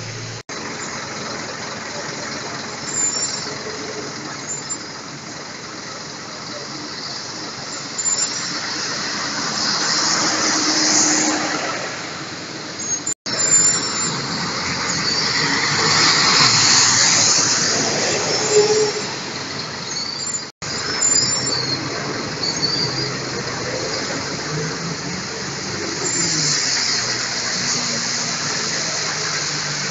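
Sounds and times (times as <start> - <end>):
bus ride noise: 0.0 - 29.9
faint squeal: 16.4 - 23.2.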